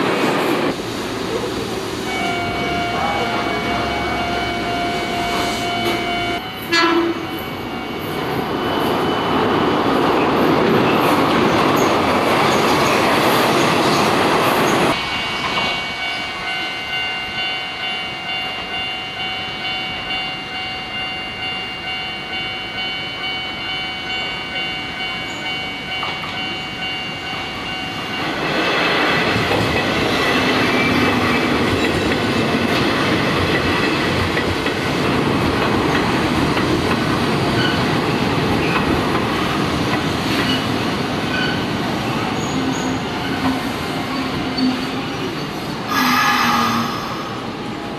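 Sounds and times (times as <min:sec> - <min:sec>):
train wheels on track: 0:00.0 - 0:47.9
level-crossing warning bell: 0:01.8 - 0:11.0, 0:14.9 - 0:47.9.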